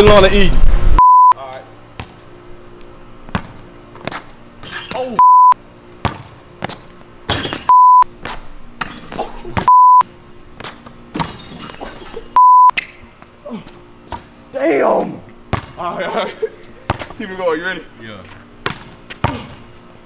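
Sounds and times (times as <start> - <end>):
high-pitched test tone beeps: 1.0 - 1.4, 5.2 - 5.6, 7.7 - 8.0, 9.7 - 10.0, 12.4 - 12.7.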